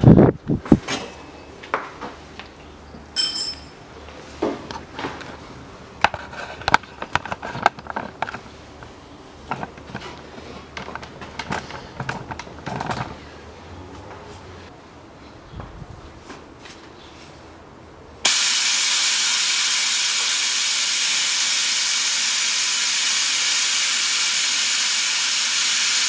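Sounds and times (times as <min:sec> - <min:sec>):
metal tools clicking and clinking: 0:03.2 - 0:03.8
ringing metallic clink: 0:03.2 - 0:03.8.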